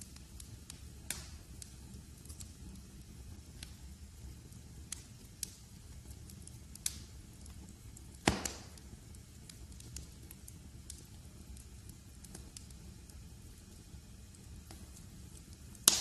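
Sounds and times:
fire crackling: 0.0s - 16.0s
flames rumbling in fireplace: 0.0s - 16.0s
log popping: 8.2s - 8.8s.

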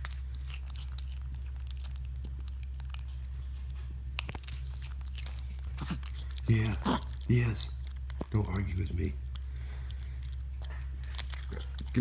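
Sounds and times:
monkey chewing crunchy food: 0.0s - 12.0s
steady low hum: 0.0s - 12.0s.

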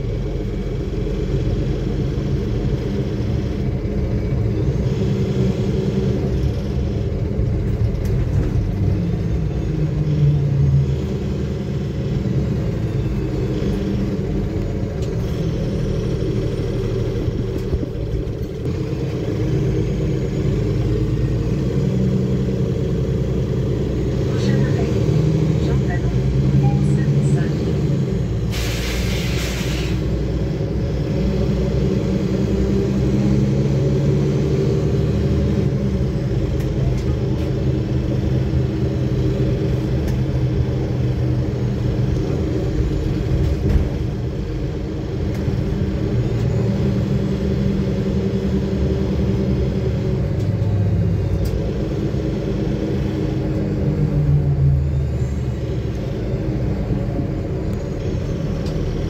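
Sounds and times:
bus engine droning: 0.0s - 59.0s
road rumble: 0.0s - 59.0s
air hiss: 28.5s - 30.0s.

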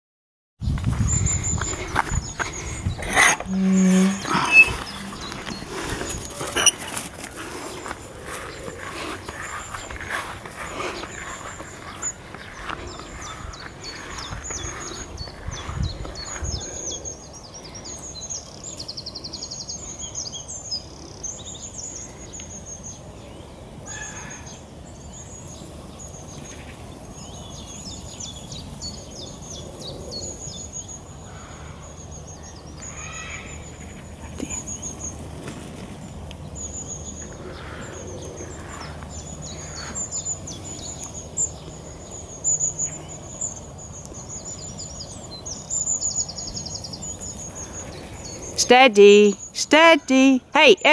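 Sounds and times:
songbirds chirping and whistling: 0.6s - 50.9s
bird trill: 1.1s - 6.9s.

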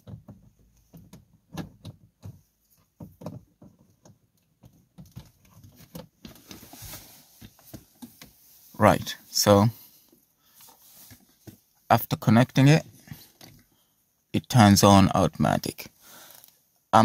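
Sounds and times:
light clicks and knocks of handling: 0.0s - 8.6s, 12.8s - 13.8s.

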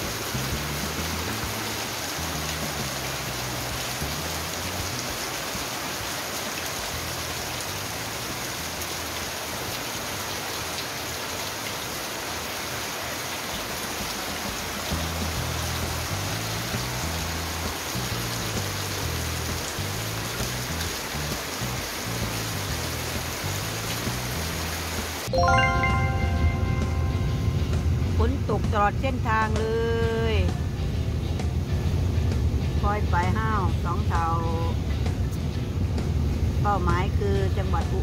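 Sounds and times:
heavy rain on concrete: 0.0s - 38.0s
background music bass line: 25.3s - 30.5s.

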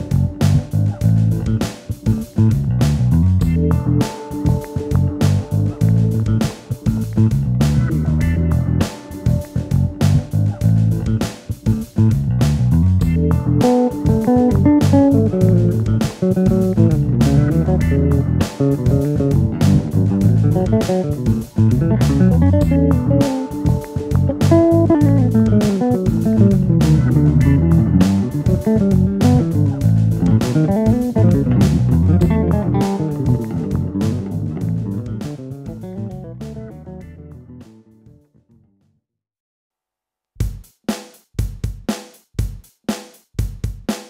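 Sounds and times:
electric bass plucked notes: 0.0s - 38.0s
steady beat of sharp clicks: 13.1s - 36.6s.

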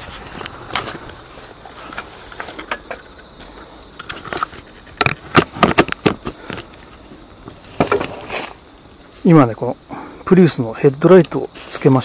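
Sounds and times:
faint hiss: 6.2s - 12.0s.

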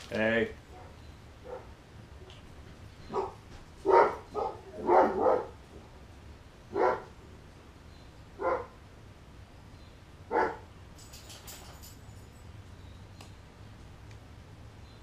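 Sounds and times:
dog barking: 0.7s - 1.8s, 3.1s - 5.6s, 6.7s - 7.1s, 8.4s - 8.8s, 10.3s - 10.7s.

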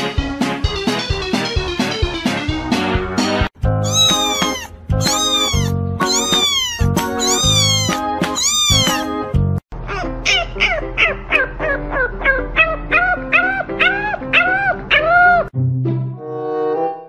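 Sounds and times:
background music: 0.0s - 17.0s
kitten meowing: 3.8s - 9.2s, 9.9s - 11.3s, 12.2s - 15.5s.

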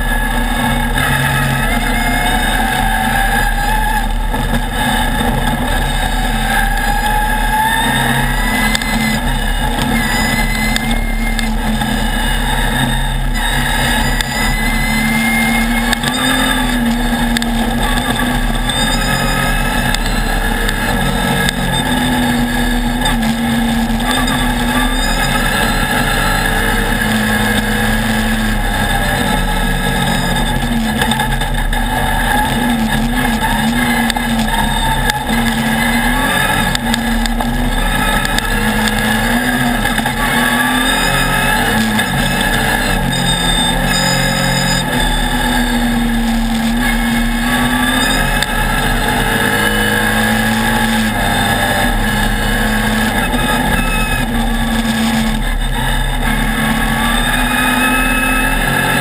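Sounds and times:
race buggy engine revving: 0.0s - 59.0s
ride noise: 0.0s - 59.0s.

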